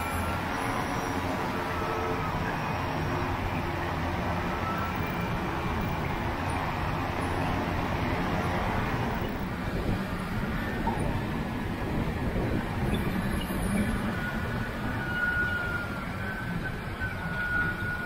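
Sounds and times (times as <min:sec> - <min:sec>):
wind rushing on microphone: 0:05.2 - 0:18.0.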